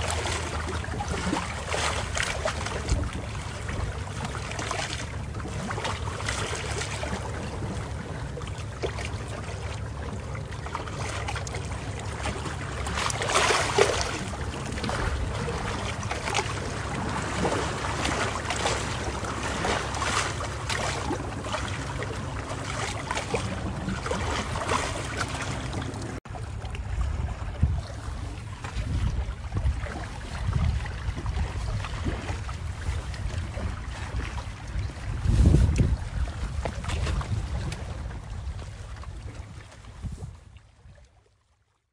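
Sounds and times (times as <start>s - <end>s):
low hum and rumble: 0.0s - 41.3s
water lapping: 0.0s - 41.8s
wind on the microphone: 2.2s - 5.8s, 21.0s - 41.1s.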